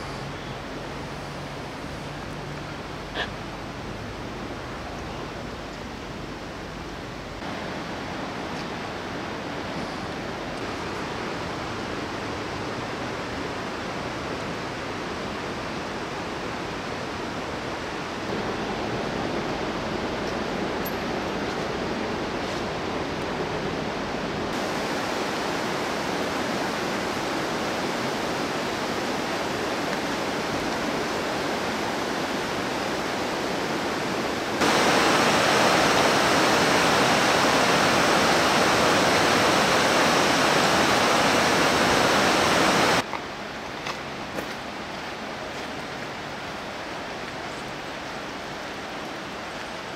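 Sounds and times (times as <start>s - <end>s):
white-water river rushing: 21.8s - 43.5s.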